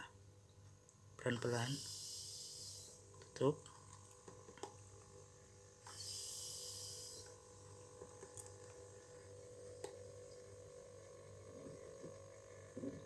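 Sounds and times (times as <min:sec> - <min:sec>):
refrigerator compressor hum: 0:00.0 - 0:13.0
refrigerant hissing through valve: 0:01.6 - 0:03.0, 0:05.9 - 0:07.3.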